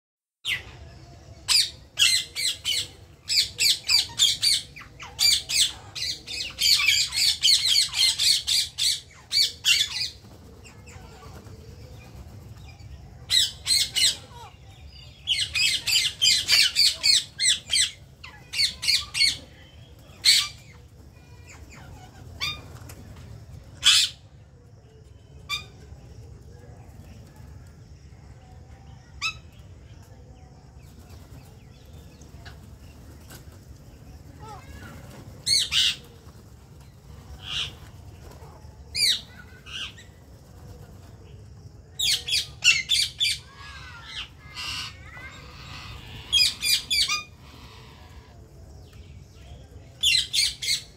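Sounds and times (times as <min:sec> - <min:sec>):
parakeets squawking: 0:42.0 - 0:48.3.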